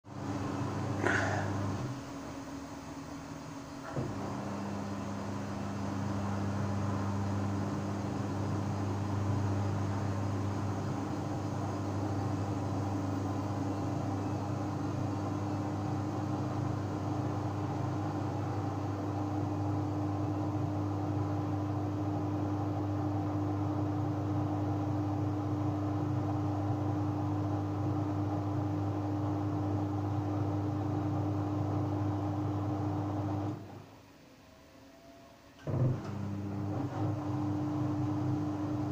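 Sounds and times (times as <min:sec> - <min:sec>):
washing machine spinning hum: 0:00.0 - 0:34.2, 0:35.5 - 0:38.9.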